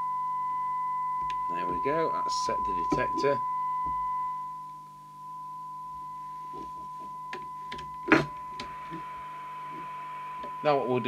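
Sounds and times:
steady test tone from radio speaker: 0:00.0 - 0:11.0
receiver noise hiss: 0:01.2 - 0:11.0
knock: 0:08.1 - 0:08.3.

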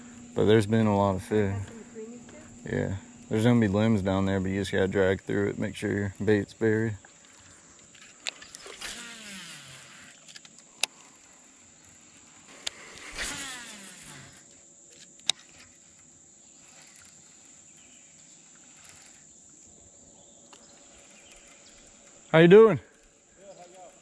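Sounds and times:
fishing reel spool whirring: 0:00.0 - 0:24.0
sharp reel clicks: 0:05.8 - 0:19.9.

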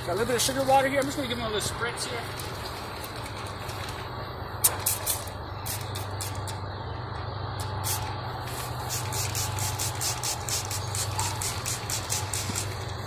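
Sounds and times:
spray bottle squirts: 0:04.6 - 0:06.6, 0:07.6 - 0:12.9.

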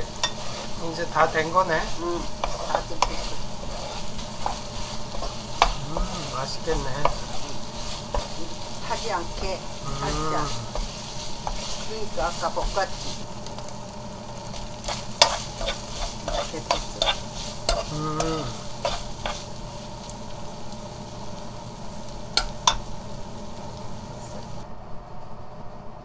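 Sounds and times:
metal spoon scraping a wok: 0:00.0 - 0:13.6, 0:14.5 - 0:19.9
sauce sizzling: 0:00.0 - 0:24.6.

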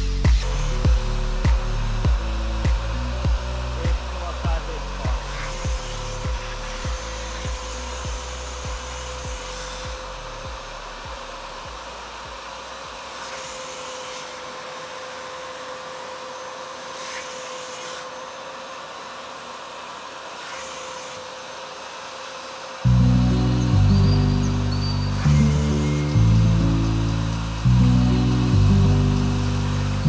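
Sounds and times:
faint music beat: 0:00.0 - 0:13.1
extractor motor whine: 0:00.0 - 0:30.0
suction hiss: 0:00.0 - 0:30.0.

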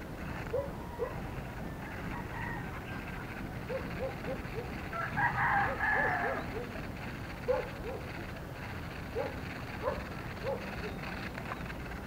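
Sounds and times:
rooster crowing: 0:00.8 - 0:03.4, 0:04.0 - 0:06.8.

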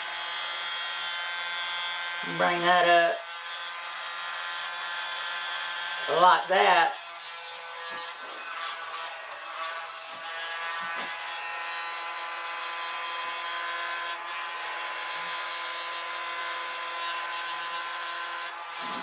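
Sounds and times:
mini blower motor whine: 0:10.4 - 0:19.0.

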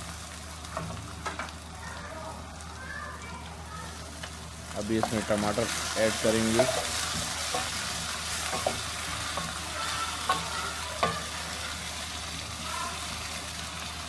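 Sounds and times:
vegetables sizzling in hot oil: 0:00.0 - 0:14.0
spatula knocking against pan: 0:08.4 - 0:09.6, 0:10.2 - 0:11.3.

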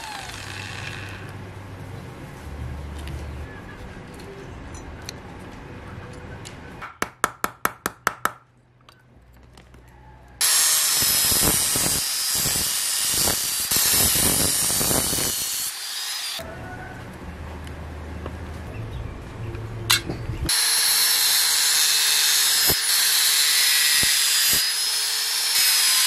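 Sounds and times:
power tool grinding metal: 0:10.4 - 0:16.4, 0:20.5 - 0:26.0.

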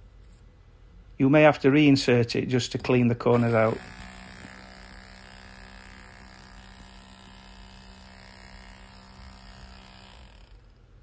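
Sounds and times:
hammer drill chiselling block: 0:03.3 - 0:10.8.

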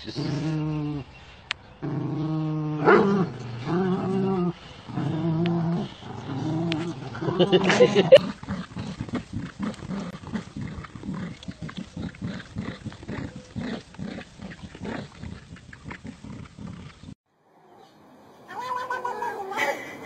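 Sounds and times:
dogs play growling: 0:01.8 - 0:17.2.

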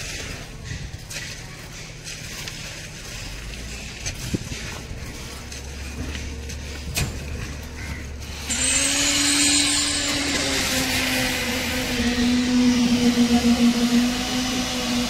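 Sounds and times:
machine motor humming: 0:07.3 - 0:15.0.

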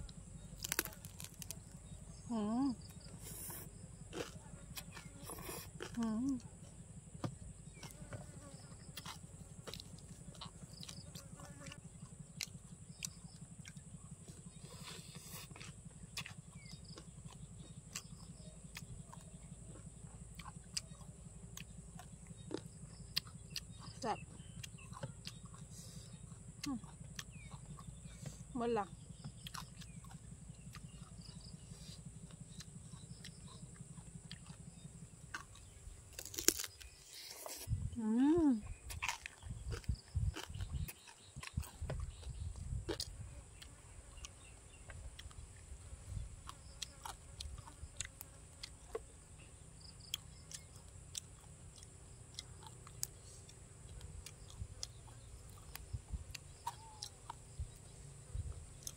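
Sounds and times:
low steady rumble: 0:00.0 - 0:58.9
person chewing crunchy food: 0:00.0 - 0:58.9.

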